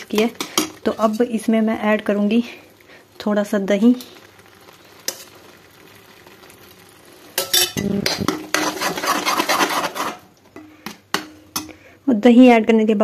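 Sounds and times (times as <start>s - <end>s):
metal spatula scraping a pan: 4.0s - 11.8s.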